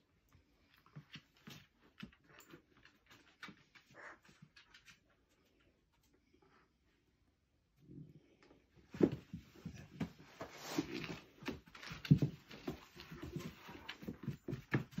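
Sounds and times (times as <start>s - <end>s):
dogs scuffling on wooden floor: 0.4s - 5.3s, 8.9s - 15.0s
paws knocking on wood: 11.3s - 15.0s.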